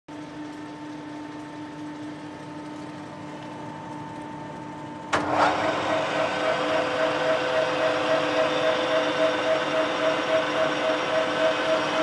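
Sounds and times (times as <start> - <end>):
lathe gear noise rushing: 5.2 - 12.0
lathe humming: 5.2 - 12.0.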